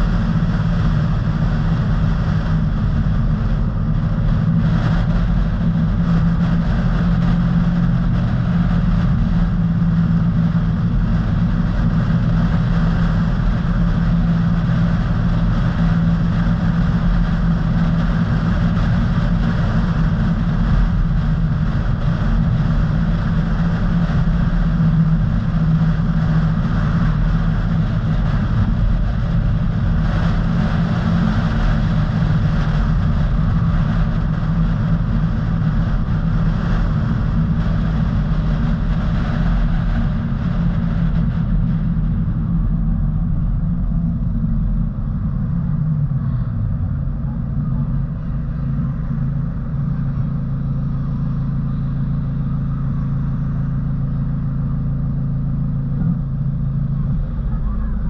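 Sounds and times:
car engine and tyre rumble: 0:00.0 - 0:58.0.

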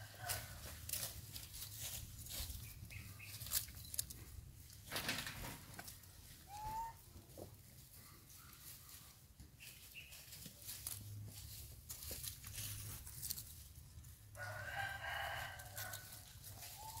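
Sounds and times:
rooster crowing: 0:00.0 - 0:00.5, 0:14.4 - 0:16.2.

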